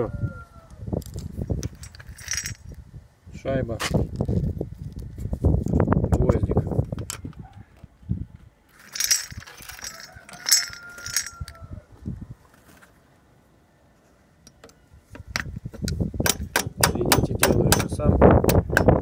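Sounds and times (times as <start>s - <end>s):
metal clinking: 1.6s - 2.8s, 8.8s - 11.6s.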